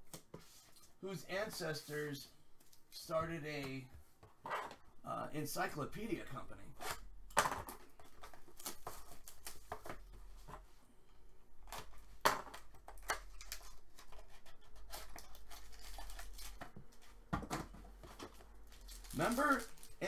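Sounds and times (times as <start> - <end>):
plastic wrap crinkling: 13.2 - 17.1, 18.0 - 20.0.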